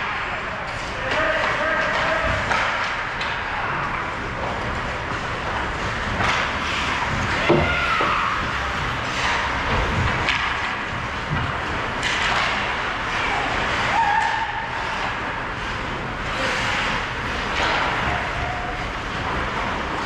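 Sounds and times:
steady rush of noise: 0:00.0 - 0:20.0
stick or puck clacks: 0:01.1 - 0:03.4, 0:05.5 - 0:08.1, 0:09.1 - 0:10.8, 0:11.4 - 0:12.9
skate blades scraping ice: 0:01.1 - 0:20.0.

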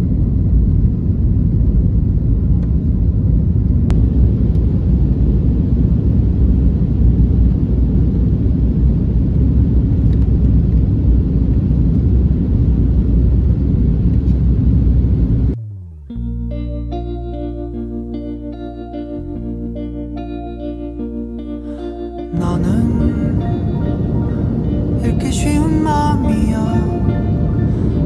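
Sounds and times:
jet engine cabin rumble: 0:00.0 - 0:15.7, 0:22.4 - 0:28.0.

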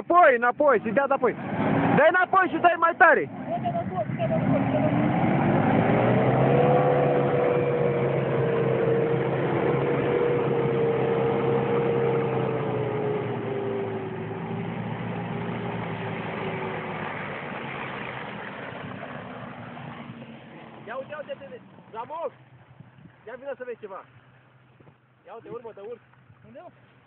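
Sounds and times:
suv engine pulling hard: 0:00.0 - 0:24.8.

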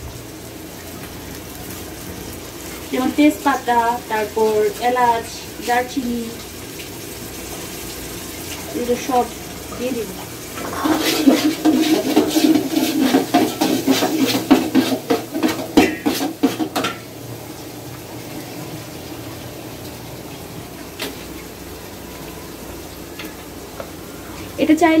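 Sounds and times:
spices frying in oil: 0:00.0 - 0:25.0
metal spoon scraping a pot: 0:10.6 - 0:16.7.

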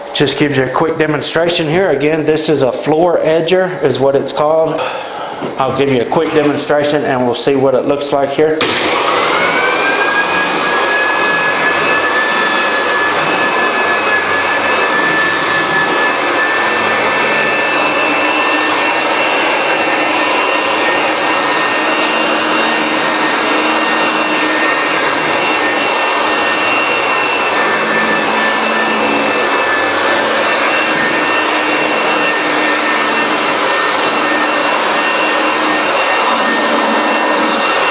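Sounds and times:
floor sander motor whining: 0:08.5 - 0:37.9.

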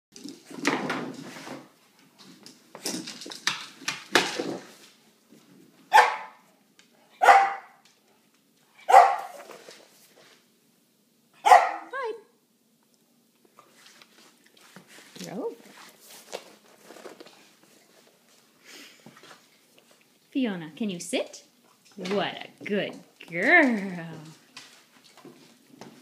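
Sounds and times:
dog barking: 0:05.9 - 0:06.4, 0:07.2 - 0:07.8, 0:08.9 - 0:09.4, 0:11.4 - 0:11.9.

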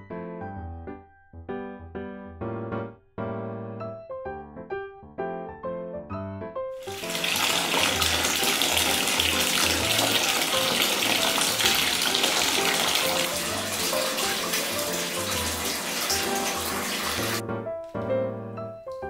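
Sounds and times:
tap water splashing into bath: 0:06.8 - 0:17.4.

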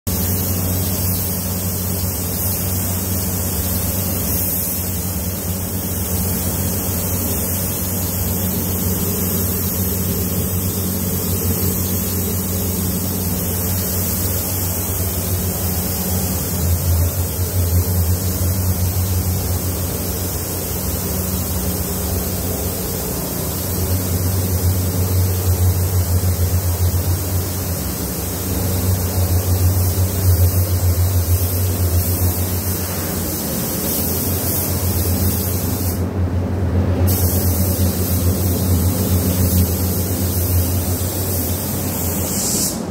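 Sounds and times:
hiss of spray gun air: 0:00.1 - 0:36.2, 0:37.0 - 0:42.9
low machine hum: 0:00.1 - 0:42.1.

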